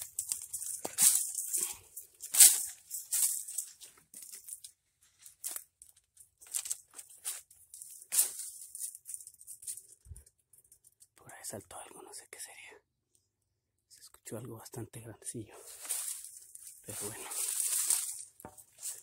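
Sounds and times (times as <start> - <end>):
dead leaves rustling: 0.0 - 10.1, 15.6 - 19.0
dry twigs snapping: 0.0 - 11.1, 15.7 - 19.0.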